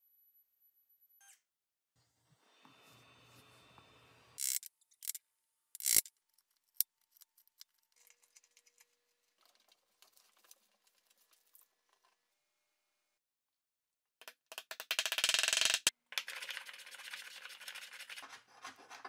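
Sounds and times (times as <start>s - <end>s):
light scratching and ticks: 6.4s - 12.2s.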